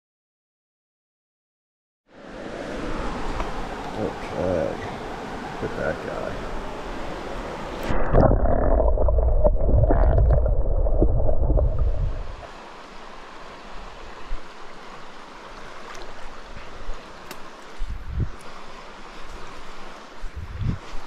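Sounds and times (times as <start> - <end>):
stream running water: 2.1 - 21.0
underwater sloshing and gurgling: 3.1 - 12.6.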